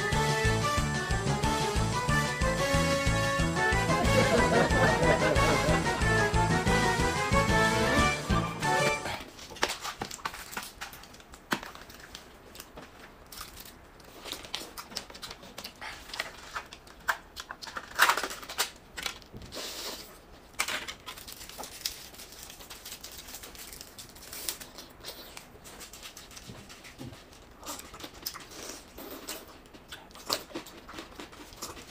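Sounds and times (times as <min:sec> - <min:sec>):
crinkling rustles: 0:09.3 - 0:31.9.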